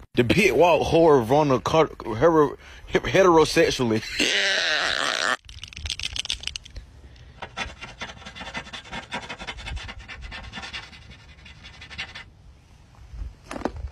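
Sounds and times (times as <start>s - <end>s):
paint pen tip scratching on car: 7.4s - 12.3s.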